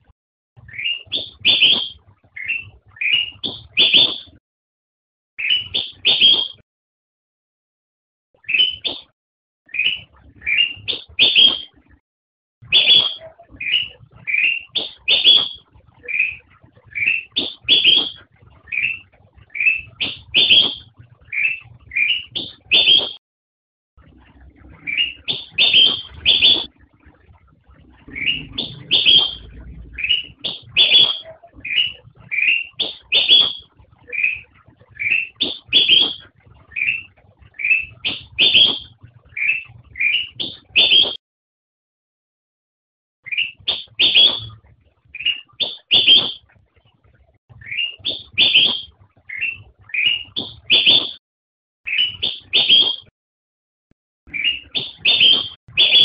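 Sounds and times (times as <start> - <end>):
bird singing whistled phrases: 0.7 - 4.3, 5.4 - 6.6, 8.4 - 9.0, 9.7 - 11.7, 12.7 - 23.2, 24.8 - 26.7, 28.0 - 41.2, 43.3 - 46.4, 47.6 - 51.2, 51.9 - 53.1, 54.3 - 56.0.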